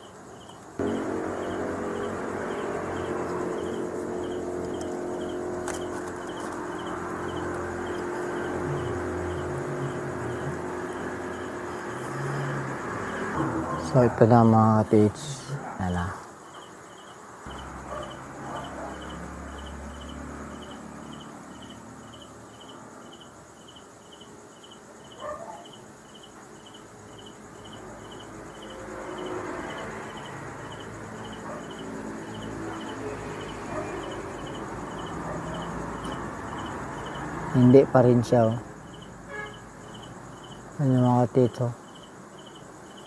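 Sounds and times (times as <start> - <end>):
cricket chirping: 0.0 - 43.0
handling noise: 0.8 - 9.0.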